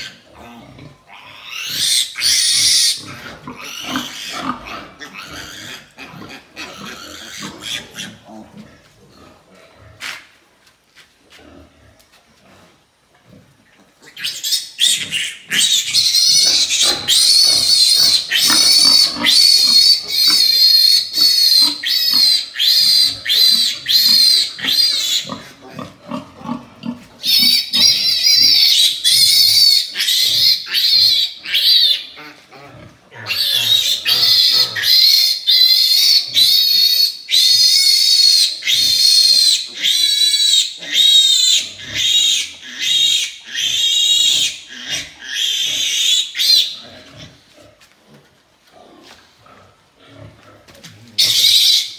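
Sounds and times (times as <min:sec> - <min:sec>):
piglet squealing: 0:01.2 - 0:04.4, 0:14.1 - 0:25.4, 0:27.2 - 0:32.2, 0:33.3 - 0:46.8, 0:51.2 - 0:51.9.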